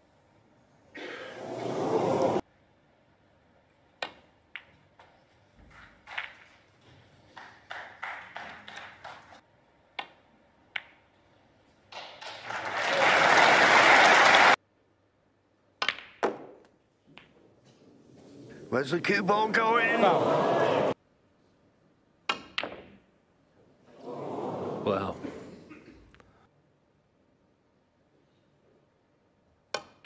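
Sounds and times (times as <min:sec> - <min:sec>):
snooker balls clicking: 0:03.9 - 0:11.3, 0:15.8 - 0:17.8, 0:22.3 - 0:23.1, 0:29.7 - 0:30.0
audience applause: 0:07.3 - 0:09.4, 0:12.2 - 0:14.6, 0:19.3 - 0:21.0.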